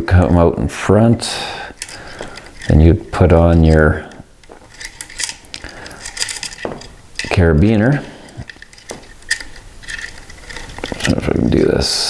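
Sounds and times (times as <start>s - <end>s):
metal carabiner clicking: 1.7s - 11.7s.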